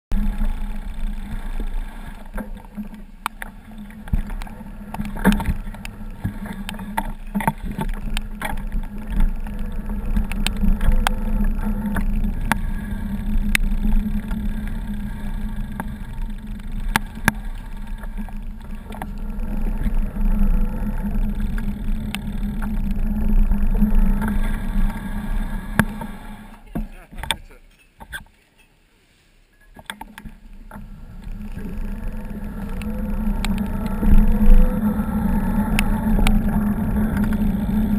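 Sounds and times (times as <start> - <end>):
sharp clicks and knocks: 0.1 - 25.1, 25.7 - 28.7
low rumble of moving camera: 0.1 - 28.3, 29.6 - 37.9.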